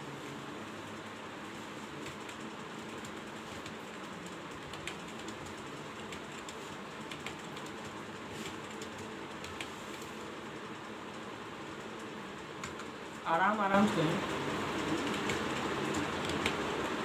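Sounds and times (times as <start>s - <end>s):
steady background hiss: 0.0s - 17.0s
computer keyboard keys clicking: 2.0s - 10.0s, 11.9s - 12.9s, 14.7s - 16.7s.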